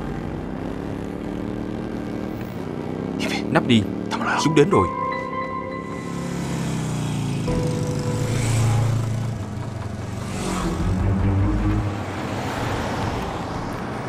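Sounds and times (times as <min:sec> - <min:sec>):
vehicles driving past: 0:00.0 - 0:14.0.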